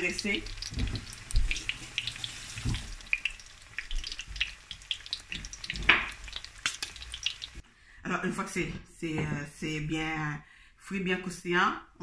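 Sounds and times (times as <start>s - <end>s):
shrimp deep-frying in oil: 0.0s - 7.6s.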